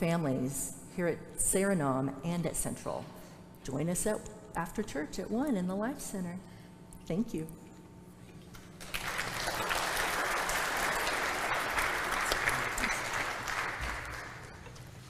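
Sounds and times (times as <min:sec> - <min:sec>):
congregation applauding: 0:08.8 - 0:14.7.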